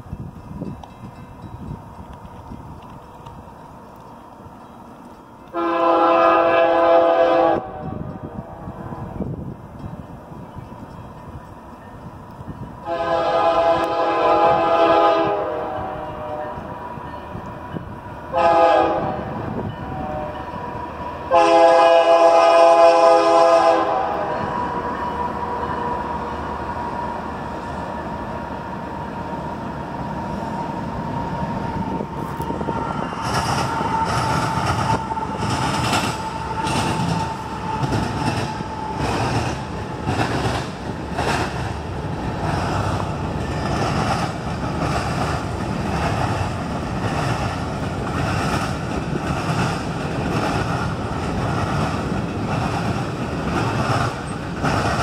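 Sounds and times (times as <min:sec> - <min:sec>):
crossing bell ringing: 0:00.0 - 0:06.0, 0:09.2 - 0:13.3, 0:15.5 - 0:18.4, 0:19.0 - 0:21.3, 0:24.1 - 0:27.7
train horn blast: 0:05.5 - 0:08.6, 0:12.8 - 0:17.5, 0:18.3 - 0:26.8
train wheels clacking on rails: 0:31.7 - 0:55.0.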